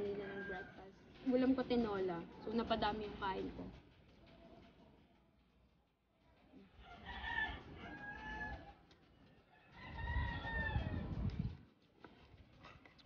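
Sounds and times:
rooster crowing: 0:00.0 - 0:00.8, 0:06.8 - 0:08.8, 0:09.5 - 0:11.2.

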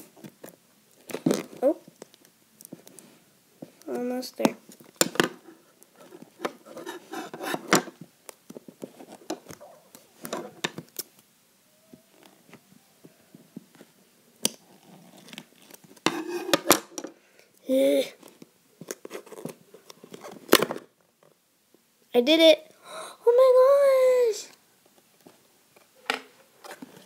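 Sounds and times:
cardboard and tape scraping: 0:05.3 - 0:08.0.

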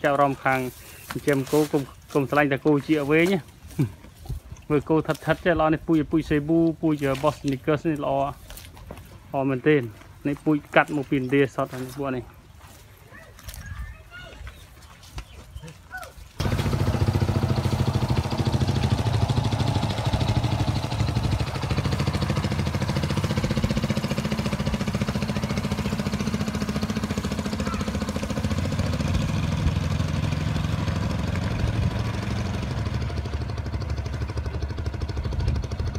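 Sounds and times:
small motorcycle engine running: 0:16.4 - 0:35.9.

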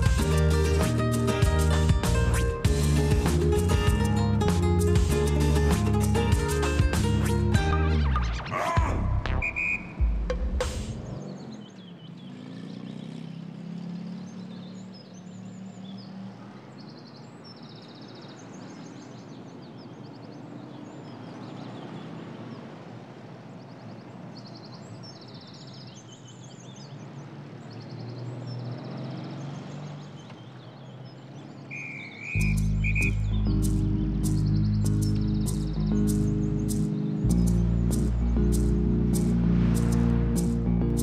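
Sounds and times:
high-pitched chirping: 0:31.8 - 0:39.3.

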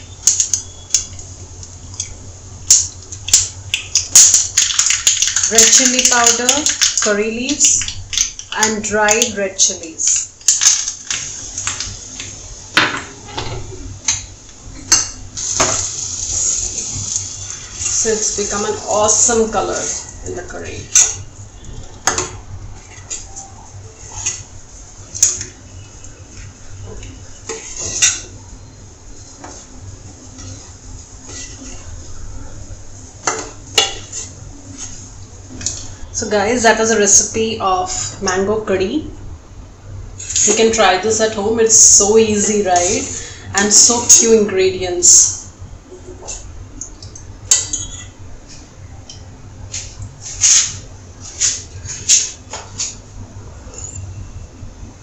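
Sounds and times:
spoon clinking on pot: 0:47.5 - 0:48.1.

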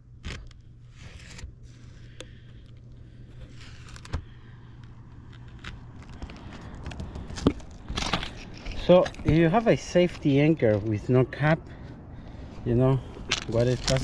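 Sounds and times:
low steady hum: 0:00.0 - 0:14.0
rustling: 0:13.3 - 0:14.0.

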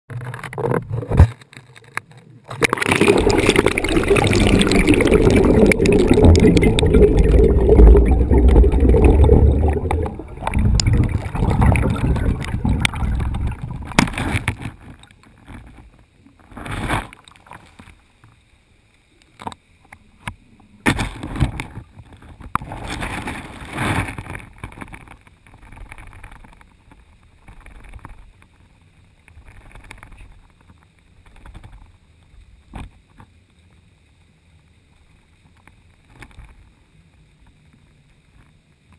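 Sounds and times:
muffled water rushing: 0:01.8 - 0:16.2.

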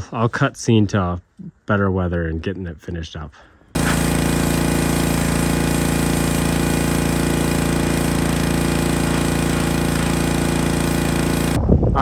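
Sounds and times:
pressure washer running: 0:03.8 - 0:11.6
water jet spraying metal: 0:03.8 - 0:11.6.

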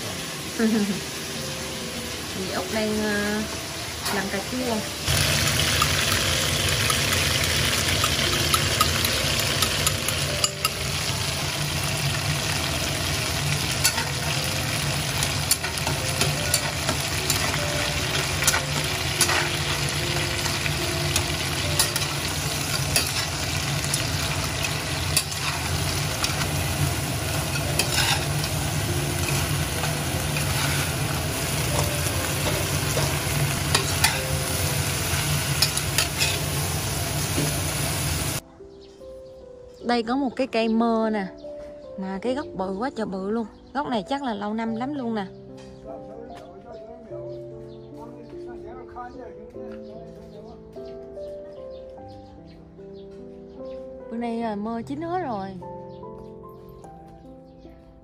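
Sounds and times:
food sizzling in a pan: 0:00.0 - 0:38.4.

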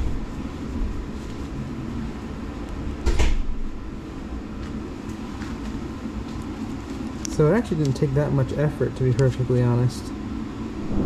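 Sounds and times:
steady low rumble: 0:10.4 - 0:11.0.

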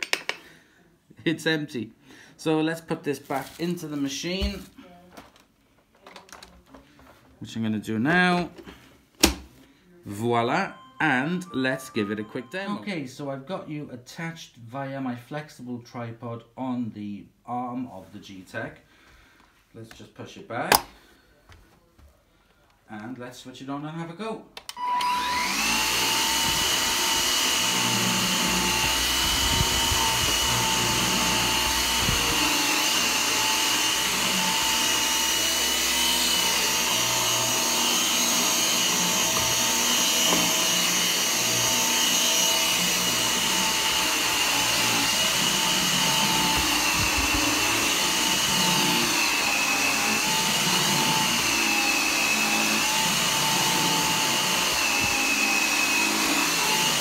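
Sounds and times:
vacuum cleaner running: 0:24.8 - 0:57.0.

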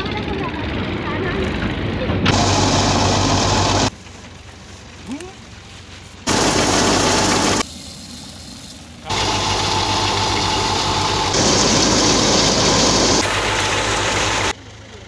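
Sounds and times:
engine hum: 0:00.0 - 0:15.0
thresher machinery din: 0:01.5 - 0:03.9, 0:06.3 - 0:07.6, 0:09.0 - 0:14.5.

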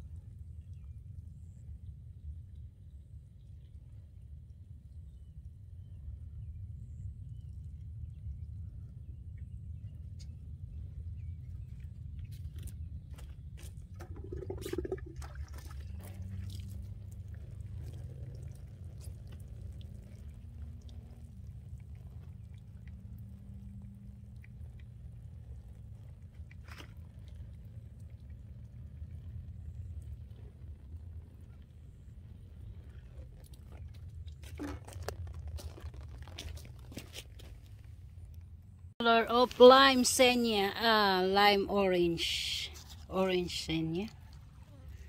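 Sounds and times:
water trickling onto soil: 0:11.6 - 0:38.6.

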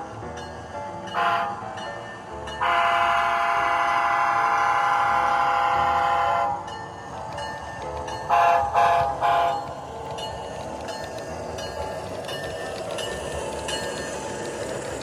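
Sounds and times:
model locomotive engine sound: 0:00.0 - 0:15.0
diesel horn blasts: 0:02.6 - 0:06.6.

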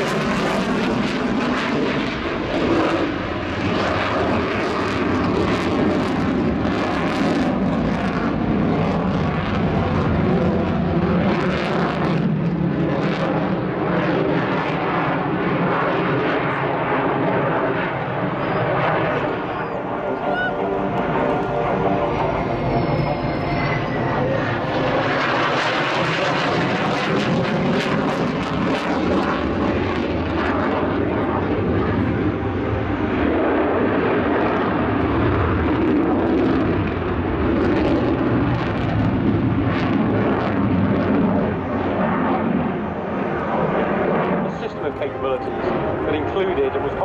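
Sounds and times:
jet engines roaring overhead: 0:00.0 - 0:47.0
faint whistling tone: 0:18.2 - 0:20.7.

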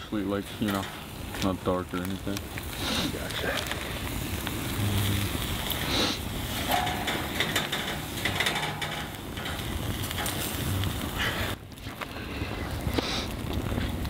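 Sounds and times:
campfire crackling: 0:00.0 - 0:14.0
wind on microphone: 0:09.4 - 0:14.0.

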